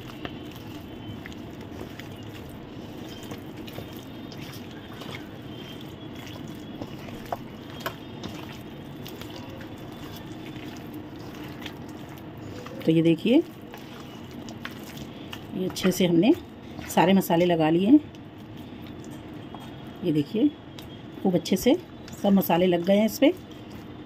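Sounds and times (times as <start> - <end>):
wet squelching of marinade: 0.0 - 24.0.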